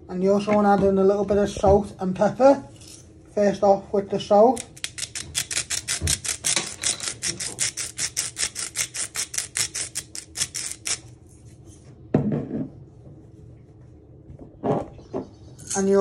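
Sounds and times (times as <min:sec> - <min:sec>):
salt grinder grinding: 0:04.7 - 0:11.1.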